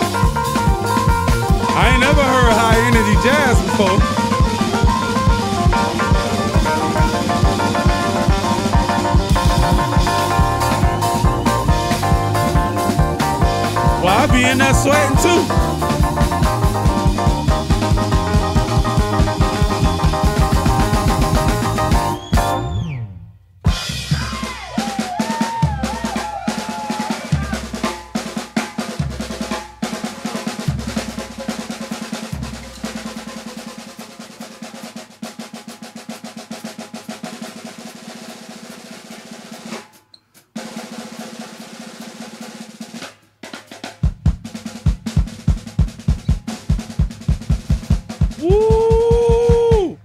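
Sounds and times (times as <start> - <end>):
snare drum rolls: 0.0 - 22.6, 23.7 - 50.0
bass notes: 0.0 - 23.4
kick drum steady pulse: 44.1 - 50.0.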